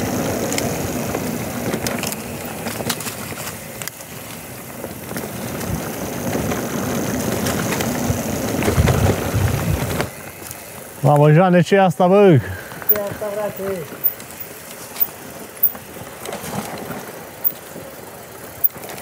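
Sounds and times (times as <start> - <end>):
tyre noise over dirt: 0.0 - 10.2
bike rattles and knocks: 0.0 - 11.3, 12.6 - 19.0.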